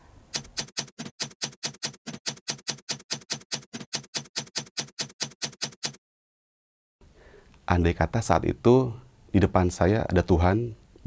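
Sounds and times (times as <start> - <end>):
keyboard typing clicks: 0.4 - 6.0.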